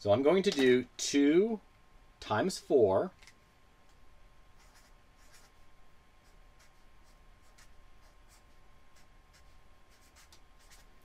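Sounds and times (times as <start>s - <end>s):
faint high tone hum: 0.0s - 11.0s
marker scratching on paper: 4.6s - 11.0s.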